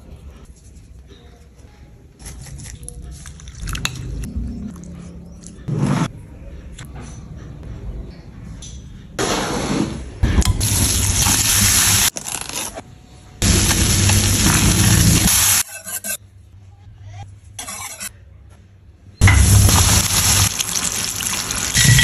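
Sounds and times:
roux sizzling in a pan: 13.4s - 15.9s, 19.2s - 22.0s.

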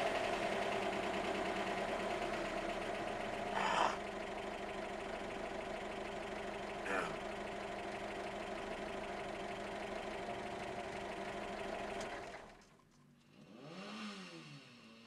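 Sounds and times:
car engine idling: 0.0s - 13.5s.

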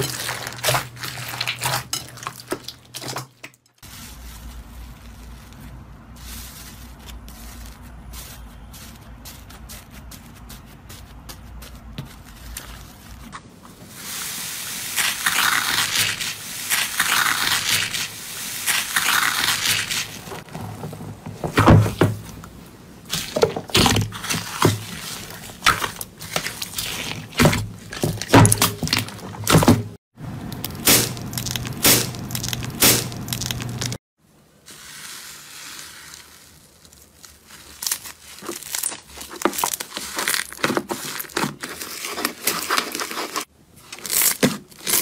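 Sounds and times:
slime crackling hiss: 13.9s - 20.3s
slime popping and squelching: 14.9s - 20.5s, 30.6s - 34.0s.

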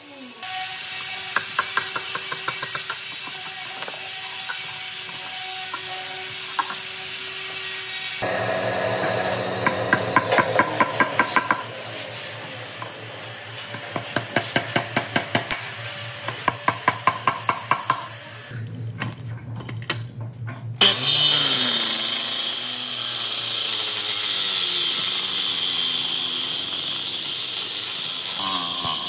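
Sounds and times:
machine hum: 8.2s - 16.3s.

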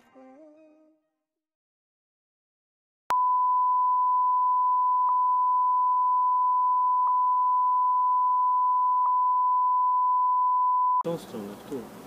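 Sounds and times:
steady electronic beep tone: 3.1s - 11.0s.

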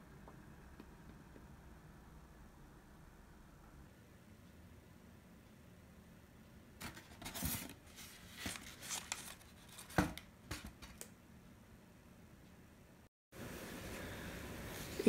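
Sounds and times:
styrofoam packaging scraping and rustling: 6.8s - 11.0s.

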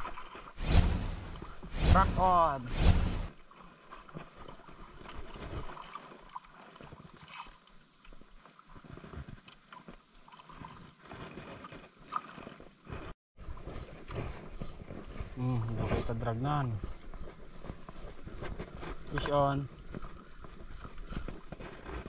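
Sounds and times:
water lapping against boat: 3.5s - 7.7s.

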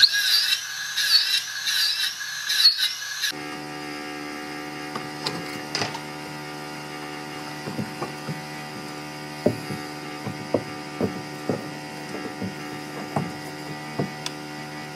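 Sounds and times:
steady machine hum: 3.3s - 14.9s.

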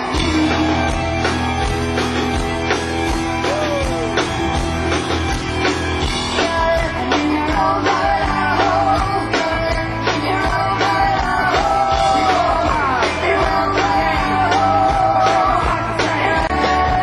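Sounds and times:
drums beating: 0.0s - 17.0s
guitar: 0.0s - 17.0s
person singing: 3.4s - 4.9s, 6.2s - 17.0s.

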